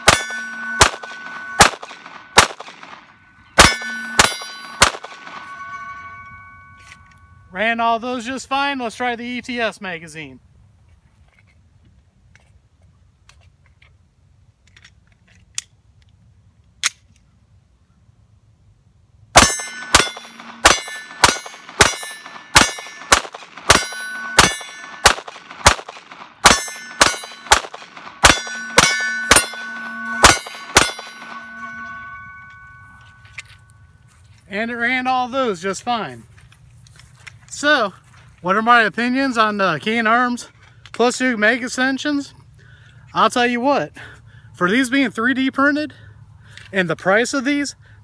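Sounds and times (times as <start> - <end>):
pistol shots: 0.0 - 5.9, 19.4 - 32.7
steel target ringing: 0.0 - 7.6, 19.4 - 34.0.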